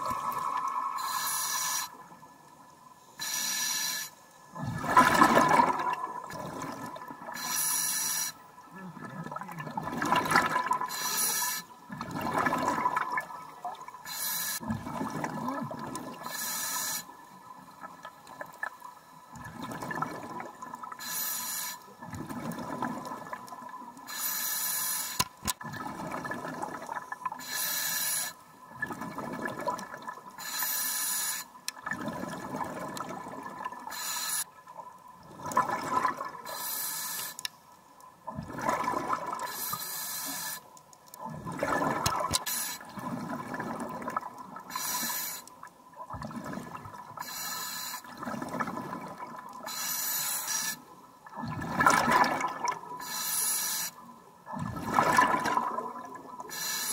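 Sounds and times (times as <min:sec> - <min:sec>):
scuba regulator inhale hiss: 0:00.8 - 0:02.0, 0:03.1 - 0:04.2, 0:07.3 - 0:08.4, 0:10.9 - 0:11.8, 0:14.0 - 0:14.6, 0:16.2 - 0:17.2, 0:21.0 - 0:21.9, 0:24.1 - 0:25.2, 0:27.4 - 0:28.4, 0:30.4 - 0:31.5, 0:33.9 - 0:34.5, 0:36.4 - 0:37.4, 0:39.4 - 0:40.7, 0:42.4 - 0:42.9, 0:44.7 - 0:45.5, 0:47.2 - 0:48.1, 0:49.6 - 0:50.8, 0:53.0 - 0:54.0, 0:56.5 - 0:56.9
exhaled bubbles gurgling: 0:04.5 - 0:07.8, 0:08.7 - 0:16.4, 0:19.3 - 0:21.0, 0:22.0 - 0:24.0, 0:25.4 - 0:27.6, 0:28.6 - 0:30.4, 0:31.8 - 0:34.1, 0:34.7 - 0:36.7, 0:38.2 - 0:39.8, 0:41.2 - 0:44.9, 0:45.9 - 0:49.8, 0:50.6 - 0:53.4, 0:54.4 - 0:56.9.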